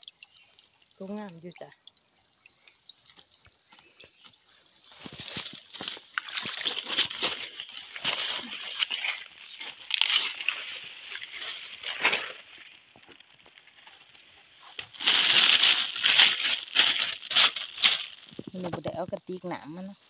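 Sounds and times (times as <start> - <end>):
footsteps through dry leaves: 3.7 - 18.6
plastic bag crinkling: 4.9 - 18.8.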